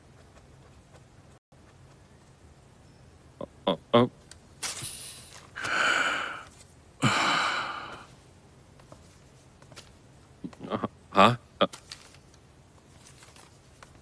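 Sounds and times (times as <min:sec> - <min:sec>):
person sighing: 0:05.6 - 0:08.1.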